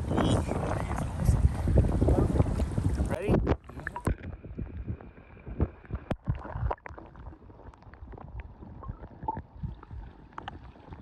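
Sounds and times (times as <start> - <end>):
underwater river current gurgling: 0.2 - 11.0.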